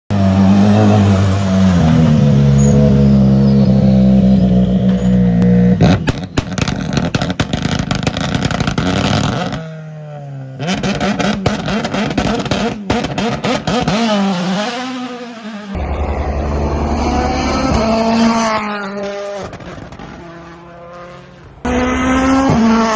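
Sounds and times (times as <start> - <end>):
rally car engine idling and crackling: 4.7 - 9.8, 10.6 - 14.2, 15.8 - 22.9.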